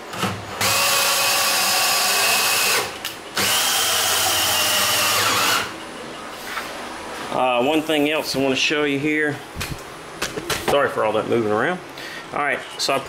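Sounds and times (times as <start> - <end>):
cordless drill motor whine: 0.6 - 5.7.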